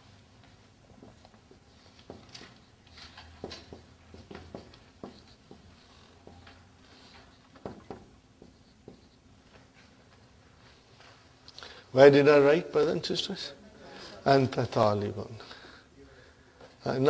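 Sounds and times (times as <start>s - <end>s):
marker squeaking on whiteboard: 1.5s - 9.3s.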